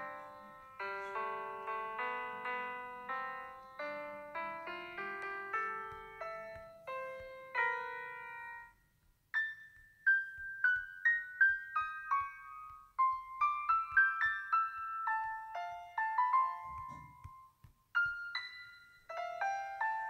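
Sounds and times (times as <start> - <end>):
background piano music: 0.0 - 20.0.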